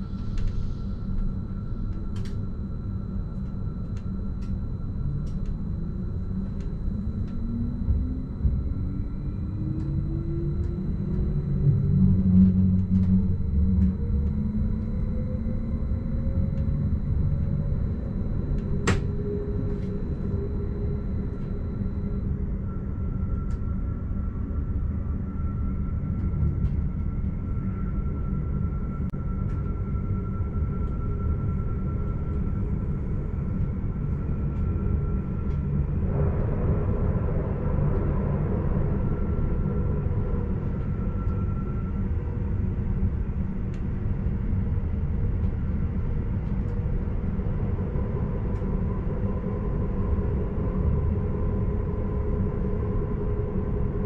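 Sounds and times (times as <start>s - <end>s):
electric train motor whine: 0.0s - 22.5s
low rumble of running gear: 0.0s - 23.5s.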